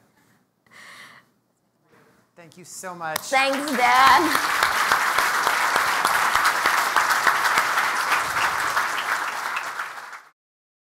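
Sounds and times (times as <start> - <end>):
audience applauding: 3.3 - 10.4.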